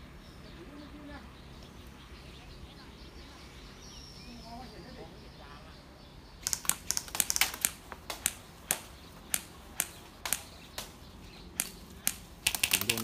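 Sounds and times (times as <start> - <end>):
airsoft gun shots: 6.4 - 11.0.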